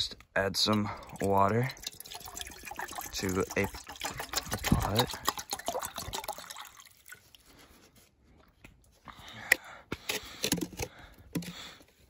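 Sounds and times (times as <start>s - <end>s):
water pouring into metal pot: 0.6s - 7.4s.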